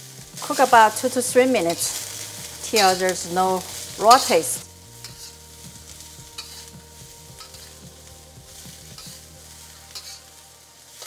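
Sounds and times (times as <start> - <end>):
bean sprouts sizzling in a wok: 0.0 - 11.0
spatula scraping and clicking on wok: 1.5 - 6.8, 7.4 - 10.4.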